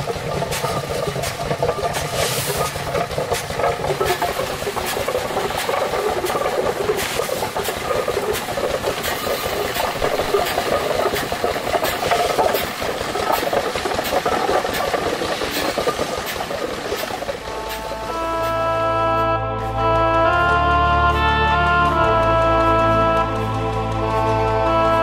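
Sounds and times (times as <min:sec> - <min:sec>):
winnowing machine clattering rattle: 0:00.0 - 0:18.6.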